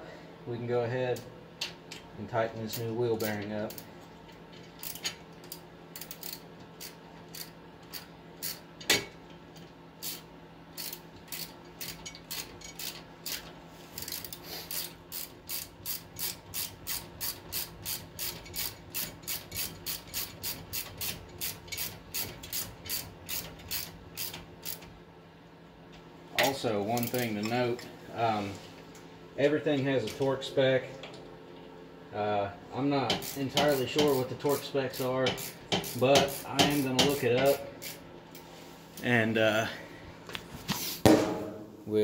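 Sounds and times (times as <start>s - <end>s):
ratchet wrench clicking: 4.7s - 8.6s, 10.0s - 24.8s, 33.1s - 38.0s
loud knock: 41.0s - 41.7s.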